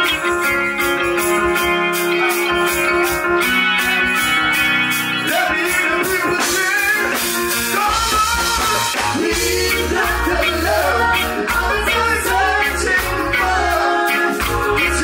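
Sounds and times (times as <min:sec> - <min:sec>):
bass guitar: 0:00.0 - 0:15.0
reggae guitar and keyboard chords: 0:00.0 - 0:15.0
man singing: 0:05.2 - 0:15.0.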